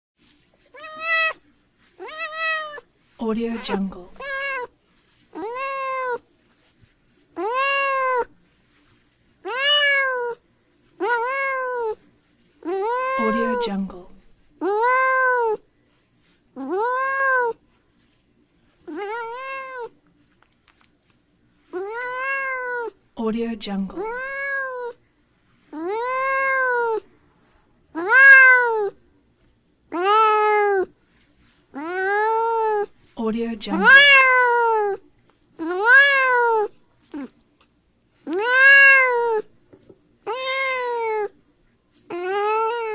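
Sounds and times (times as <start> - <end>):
cat meowing: 0.6 - 1.4, 2.0 - 2.8, 3.6 - 4.7, 5.4 - 6.2, 7.4 - 8.3, 9.4 - 10.4, 11.0 - 12.0, 12.6 - 13.8, 14.6 - 15.6, 16.6 - 17.6, 18.9 - 19.9, 21.8 - 23.0, 24.0 - 25.0, 25.8 - 27.0, 28.0 - 29.0, 29.9 - 30.9, 31.8 - 32.9, 33.7 - 35.0, 35.6 - 37.3, 38.3 - 39.5, 40.3 - 41.4, 42.1 - 42.9.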